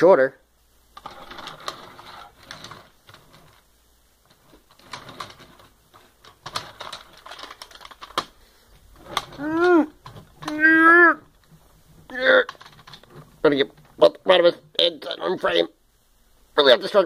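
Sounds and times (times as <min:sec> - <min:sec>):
plastic toys clattering on desk: 0:01.0 - 0:03.6, 0:04.3 - 0:08.4, 0:09.0 - 0:10.6, 0:11.4 - 0:14.0.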